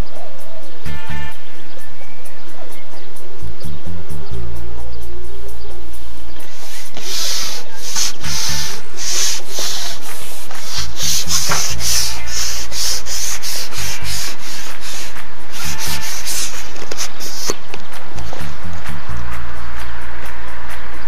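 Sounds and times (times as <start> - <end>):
shaker-like percussion: 0.0 - 21.0
stepping bass line: 4.3 - 21.0.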